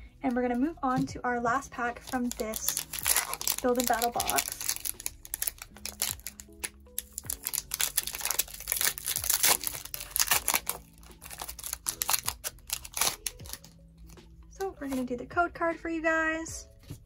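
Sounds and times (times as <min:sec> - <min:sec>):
foil pack crinkling and tearing: 0:02.0 - 0:14.2.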